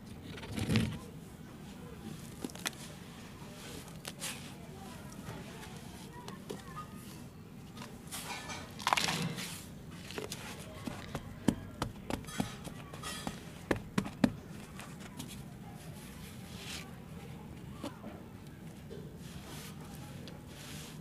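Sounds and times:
hands patting soil: 0:08.9 - 0:15.4.

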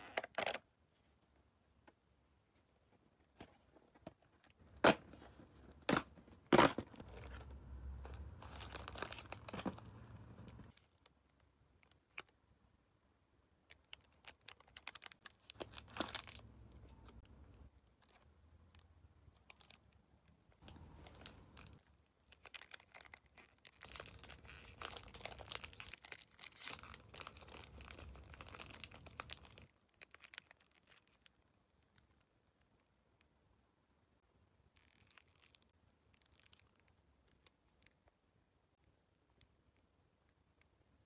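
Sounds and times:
plastic wrapper crinkling and tearing: 0:07.0 - 0:12.4, 0:13.7 - 0:17.3, 0:18.0 - 0:20.0, 0:20.6 - 0:32.9, 0:34.7 - 0:38.1.

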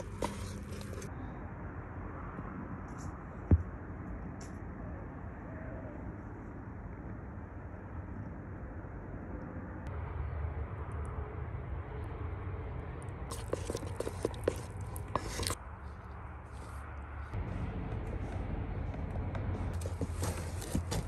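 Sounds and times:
batter squelching in a bowl: 0:00.0 - 0:01.1, 0:13.3 - 0:17.4
low rumble: 0:04.9 - 0:13.3, 0:15.6 - 0:20.2.

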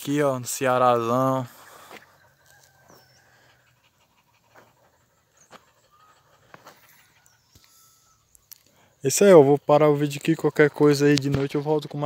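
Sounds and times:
dog panting: 0:00.9 - 0:08.3.

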